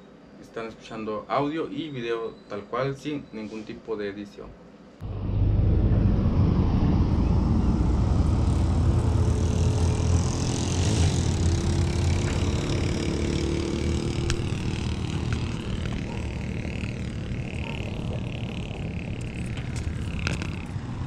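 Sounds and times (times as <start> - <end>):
wind on microphone: 5.0 - 12.2
faint engine tones: 5.0 - 21.0
road vehicle rumble: 5.0 - 21.0.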